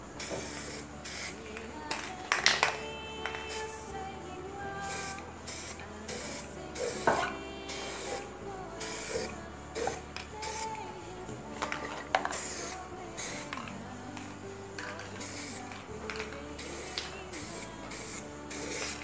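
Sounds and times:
spray can hissing in bursts: 0:00.0 - 0:01.5, 0:02.4 - 0:03.9, 0:04.8 - 0:10.8, 0:11.9 - 0:13.7, 0:14.8 - 0:19.0.

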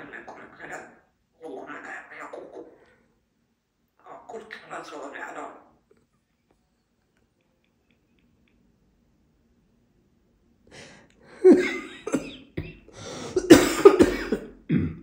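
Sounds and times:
parrot raspy vocalizations: 0:00.0 - 0:03.2, 0:04.0 - 0:05.8.

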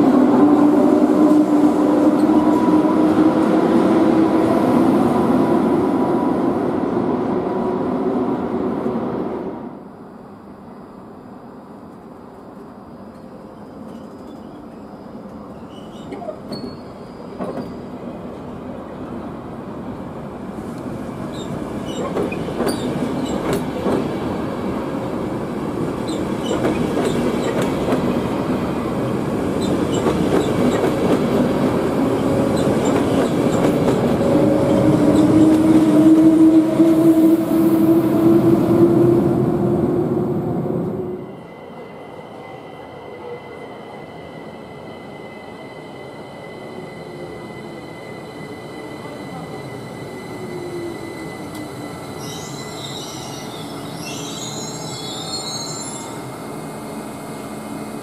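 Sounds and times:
passing train rumble: 0:00.0 - 0:58.0
locomotive whine: 0:21.2 - 0:58.0
train wheels clicking over rail joints: 0:21.3 - 0:24.1, 0:26.1 - 0:28.1, 0:29.6 - 0:31.4.

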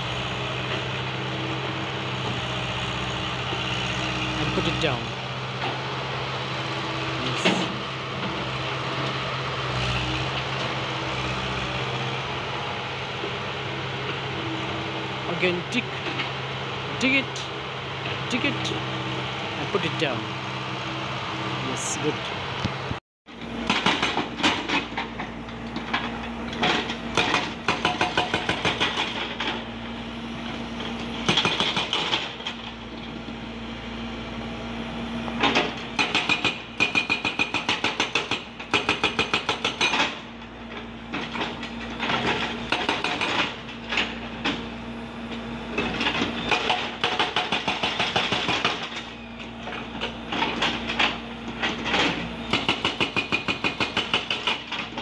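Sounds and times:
diesel engine running: 0:00.0 - 0:55.0
hydraulic breaker hammering rock: 0:23.5 - 0:29.6, 0:31.2 - 0:32.7, 0:35.4 - 0:40.3, 0:41.1 - 0:44.7, 0:45.7 - 0:55.0.

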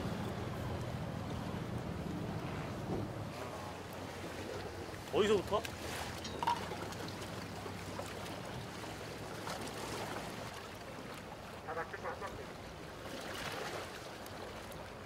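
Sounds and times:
constant low hum: 0:00.0 - 0:09.6
water around boat: 0:00.0 - 0:15.0
wind: 0:00.0 - 0:15.0.

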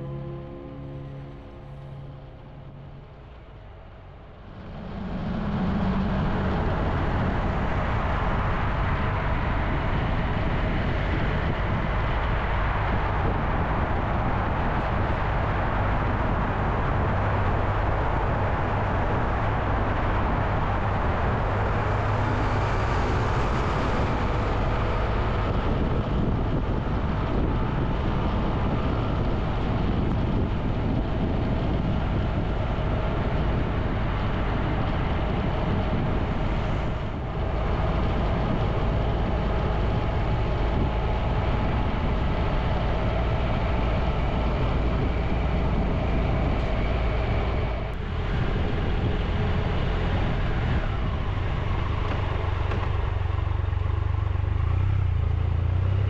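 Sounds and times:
motorcycle engine hum: 0:00.0 - 0:56.0
wind and road noise: 0:00.0 - 0:56.0.

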